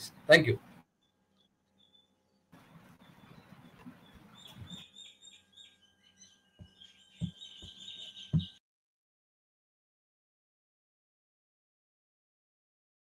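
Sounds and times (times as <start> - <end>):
faint birds chirping: 0.0 - 8.6
soft low knocks: 6.6 - 8.6.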